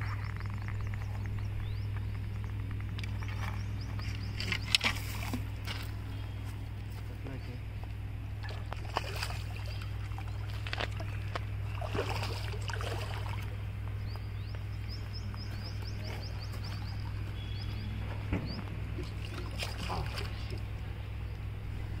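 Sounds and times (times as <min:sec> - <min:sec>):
bird chirping: 0:00.0 - 0:05.0, 0:13.5 - 0:21.5
low hum: 0:00.0 - 0:22.0
fish splashing in water: 0:08.4 - 0:13.6, 0:19.0 - 0:20.8.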